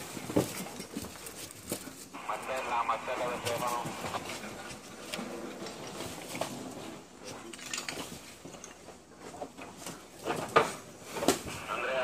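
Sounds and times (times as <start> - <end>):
rubble shifting underfoot: 0.0 - 12.0
faint voices: 2.0 - 5.5, 11.4 - 12.0.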